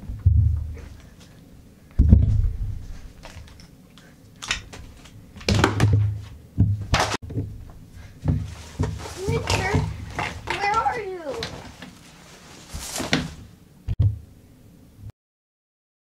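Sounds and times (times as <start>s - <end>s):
fabric rustling: 8.1s - 13.6s.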